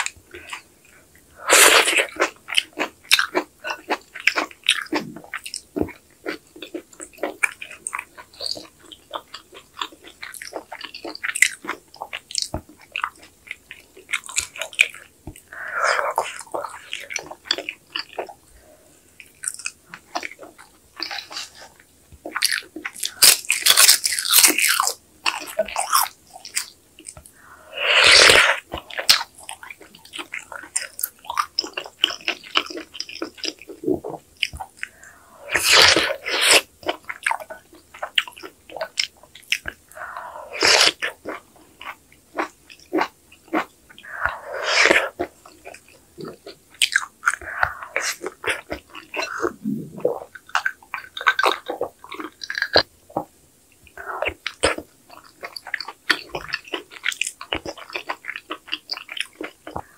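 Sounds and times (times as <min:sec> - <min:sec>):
loud slurping: 0:01.4 - 0:02.1, 0:27.4 - 0:29.0, 0:34.9 - 0:36.7, 0:39.9 - 0:41.1, 0:44.0 - 0:45.3, 0:47.3 - 0:50.3
wet chewing: 0:01.5 - 0:59.9
mouth clicks: 0:44.0 - 0:54.8.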